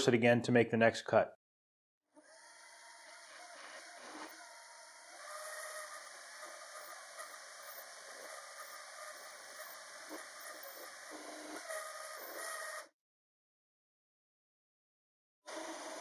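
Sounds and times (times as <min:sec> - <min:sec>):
machine whine: 0:03.6 - 0:12.4
lathe cutting hiss: 0:05.0 - 0:11.6.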